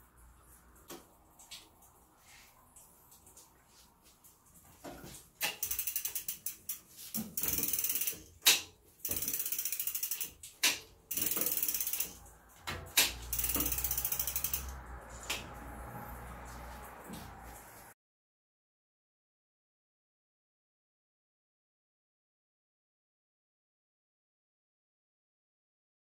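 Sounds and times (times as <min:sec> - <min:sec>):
bicycle freewheel ratchet clicking: 0:05.4 - 0:16.6.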